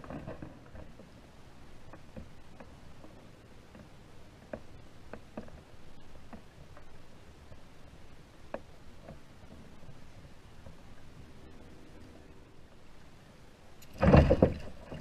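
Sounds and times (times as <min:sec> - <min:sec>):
faint low rumble: 0:00.0 - 0:15.0
light ticks and taps: 0:08.5 - 0:09.7.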